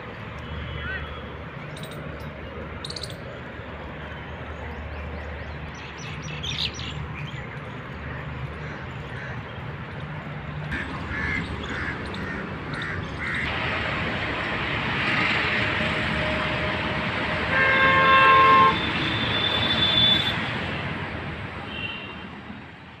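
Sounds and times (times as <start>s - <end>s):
road traffic passing: 0.0s - 23.0s
vehicle horn honking: 17.4s - 20.4s, 21.7s - 22.3s.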